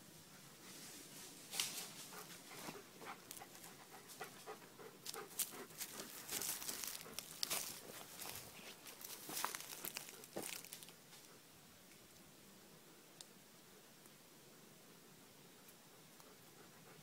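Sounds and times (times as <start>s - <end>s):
footsteps crackling through twigs: 5.0s - 11.2s.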